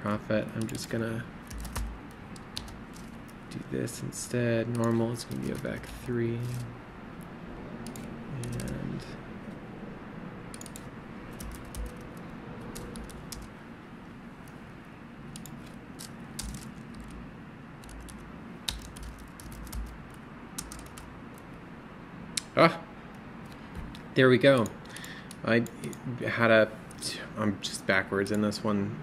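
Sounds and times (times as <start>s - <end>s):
computer keyboard key clicks: 0.6s - 0.9s, 1.5s - 3.1s, 4.7s - 6.6s, 7.8s - 8.8s, 10.5s - 13.5s, 15.4s - 17.2s, 17.8s - 21.1s, 23.8s - 26.0s.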